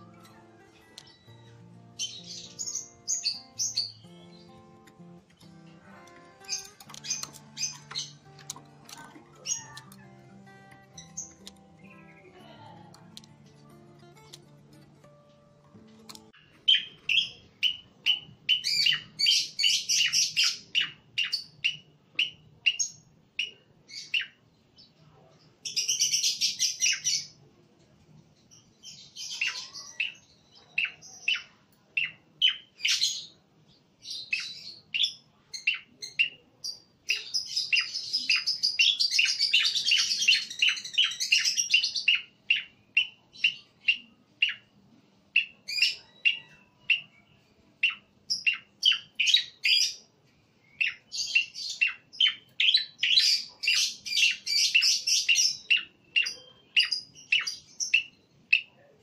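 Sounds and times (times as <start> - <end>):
bird chirping and chattering: 0.0 - 14.6, 16.0 - 24.3, 34.1 - 44.7, 47.8 - 50.0, 50.8 - 58.7.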